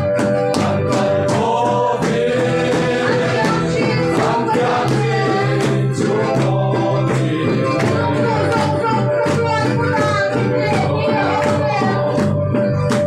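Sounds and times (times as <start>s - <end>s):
congregation singing: 0.0s - 12.4s
accompanying instruments: 0.0s - 13.0s
rhythmic beat: 0.0s - 13.0s.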